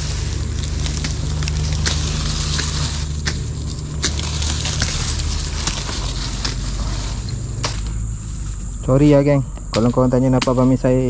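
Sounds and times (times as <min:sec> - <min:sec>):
branches cracking and snapping: 0:00.0 - 0:08.8
steady high hiss: 0:00.0 - 0:11.0
steady low rumble: 0:00.0 - 0:11.0.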